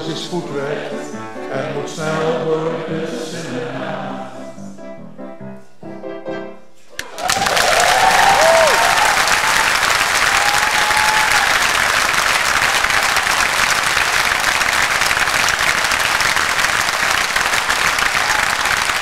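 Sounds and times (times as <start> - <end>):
audience applauding: 6.9 - 19.0.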